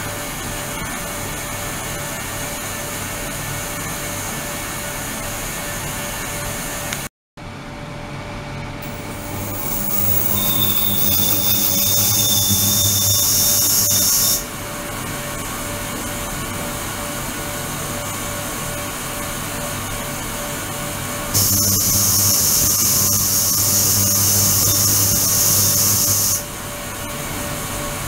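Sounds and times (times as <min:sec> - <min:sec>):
ultrasonic cleaner water hiss: 0:08.8 - 0:14.5, 0:21.4 - 0:26.5
high hiss with thin whine: 0:09.0 - 0:14.4, 0:21.4 - 0:26.5.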